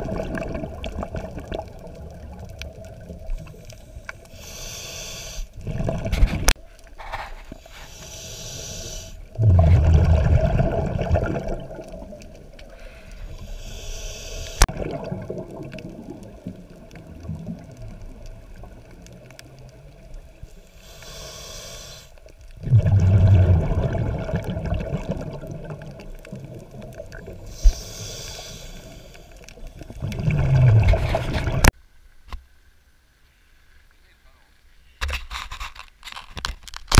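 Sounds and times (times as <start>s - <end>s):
rumbling bubbles of exhalation: 0.0s - 3.6s, 5.6s - 6.6s, 9.3s - 12.6s, 14.6s - 20.0s, 22.5s - 27.8s, 29.4s - 31.7s.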